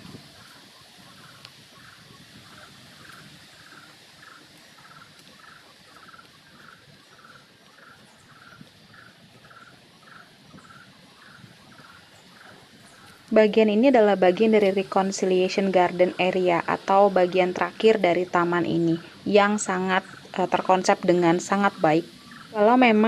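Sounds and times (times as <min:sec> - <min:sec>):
outdoor background hiss: 0:00.0 - 0:23.0
small animal chirping: 0:00.4 - 0:13.3.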